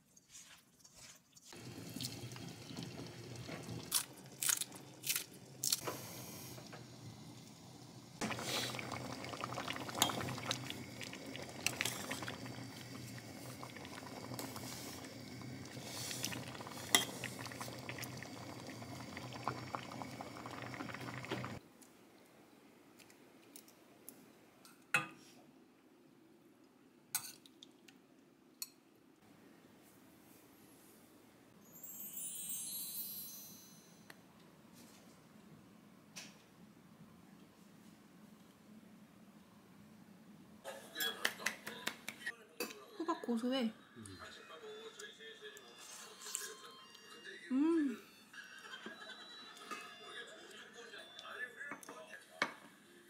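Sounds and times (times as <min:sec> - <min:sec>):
food bubbling: 0:01.0 - 0:21.6
pans and utensils clinking: 0:16.2 - 0:17.6, 0:40.7 - 0:41.3, 0:49.6 - 0:50.1.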